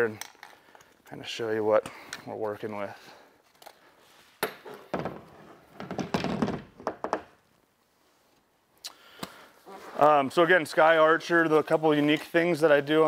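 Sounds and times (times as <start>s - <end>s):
knocks and rustling: 4.4s - 7.4s.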